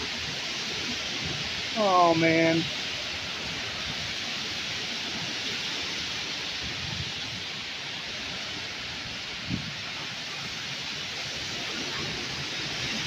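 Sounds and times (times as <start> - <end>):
heavy rain: 0.0 - 13.0
strong wind thrashing trees: 0.0 - 13.0.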